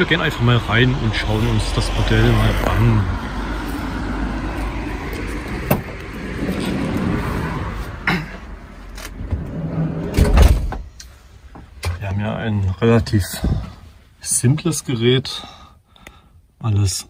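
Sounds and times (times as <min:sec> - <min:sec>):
street traffic noise: 0:00.0 - 0:17.0
sliding van door knocks and clunks: 0:05.5 - 0:06.0.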